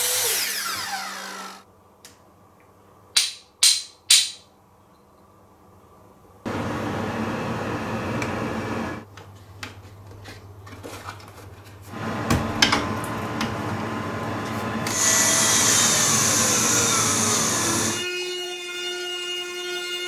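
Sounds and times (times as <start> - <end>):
loud high whine: 6.5 - 9.0.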